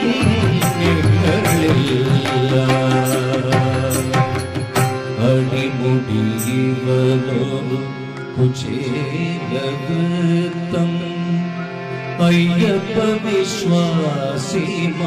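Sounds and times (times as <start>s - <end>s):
instrumental accompaniment: 0.0s - 15.0s
man singing slow melody: 0.0s - 15.0s.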